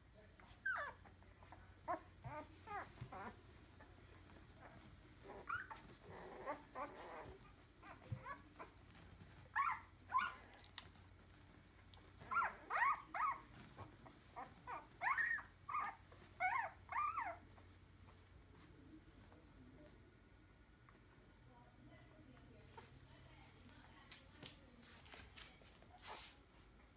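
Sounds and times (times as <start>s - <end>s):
puppies squeaky crying: 12.2s - 13.5s, 14.7s - 17.4s.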